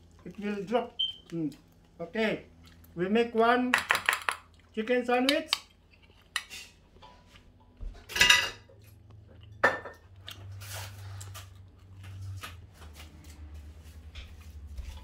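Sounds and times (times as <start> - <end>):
low steady hum: 0.0 - 15.0
kitchenware clattering on a counter: 7.8 - 8.8, 9.5 - 10.1.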